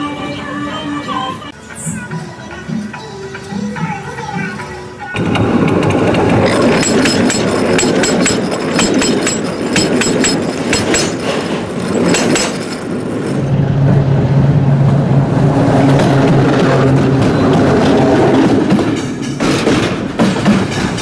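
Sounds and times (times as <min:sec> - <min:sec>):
rail vehicle low drone: 0:05.1 - 0:21.0
train wheels clicking over rail joint: 0:05.2 - 0:13.4, 0:17.9 - 0:21.0.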